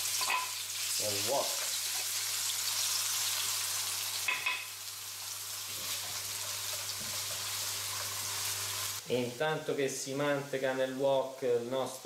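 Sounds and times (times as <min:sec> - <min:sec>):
food sizzling in oil: 0:00.0 - 0:09.4.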